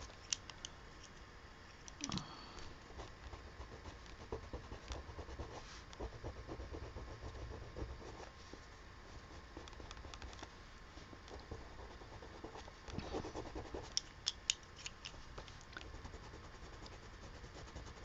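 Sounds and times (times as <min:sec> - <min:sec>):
pencil scratching on paper: 0:03.0 - 0:10.3, 0:11.3 - 0:14.0, 0:15.9 - 0:18.0.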